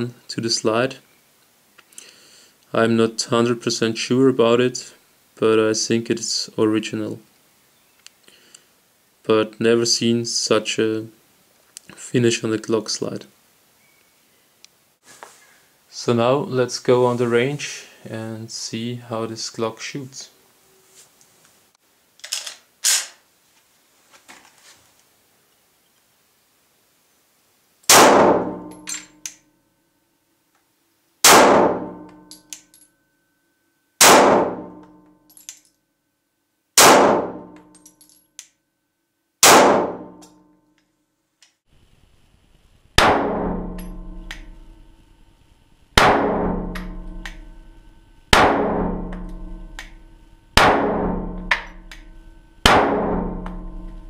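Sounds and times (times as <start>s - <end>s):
pistol shots echoing indoors: 27.9s - 29.1s, 31.2s - 32.3s, 34.0s - 35.0s, 36.8s - 37.6s, 39.4s - 40.3s, 43.0s - 44.7s, 46.0s - 50.0s, 50.6s - 53.9s.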